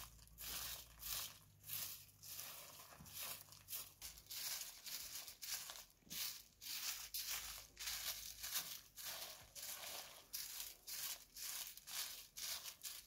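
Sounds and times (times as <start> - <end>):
broom sweeping dirt ground: 0.0 - 13.0.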